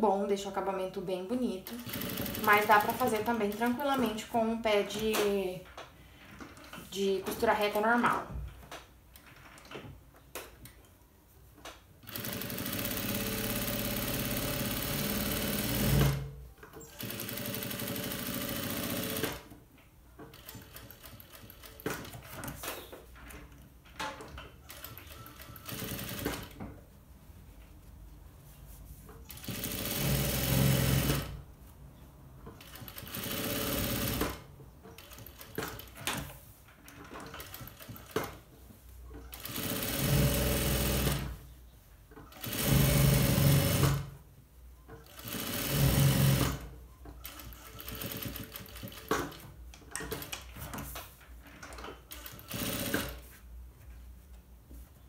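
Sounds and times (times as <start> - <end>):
sewing machine running: 1.8 - 3.0, 12.0 - 16.3, 16.9 - 19.4, 24.6 - 26.4, 29.3 - 31.3, 32.7 - 34.4, 39.3 - 41.3, 42.3 - 44.1, 45.1 - 46.6, 47.2 - 49.2, 52.1 - 53.2.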